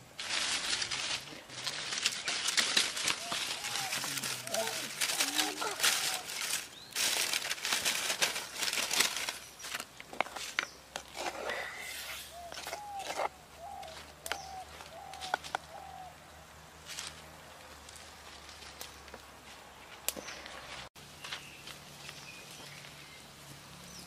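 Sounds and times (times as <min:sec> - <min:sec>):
wood fire crackling: 0:00.0 - 0:10.6
bird calling: 0:03.0 - 0:06.9, 0:10.6 - 0:16.2.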